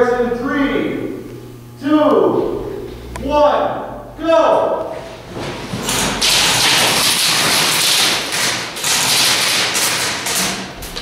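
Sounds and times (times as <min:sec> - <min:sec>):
airsoft guns firing rapid bursts: 0:06.2 - 0:10.5.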